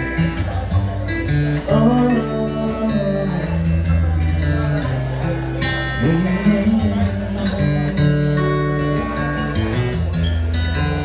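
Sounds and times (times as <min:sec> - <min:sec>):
acoustic guitar: 0:00.0 - 0:11.0
man singing into microphone: 0:01.3 - 0:09.4.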